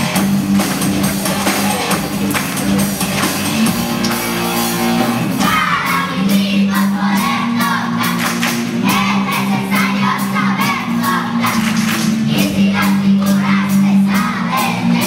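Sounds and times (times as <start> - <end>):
percussion ensemble playing: 0.0 - 14.7
children singing: 3.3 - 15.0.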